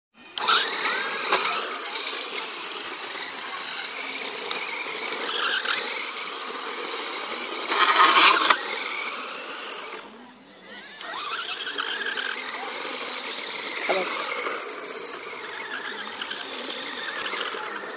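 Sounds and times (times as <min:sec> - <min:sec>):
rc car motor whining: 0:00.2 - 0:17.9.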